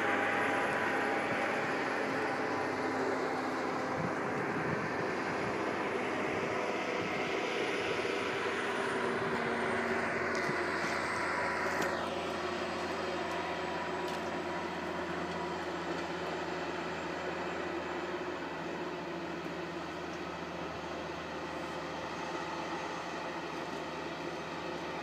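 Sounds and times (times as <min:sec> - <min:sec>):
locomotive engine drone: 0:00.0 - 0:25.0
wind noise: 0:03.8 - 0:07.6.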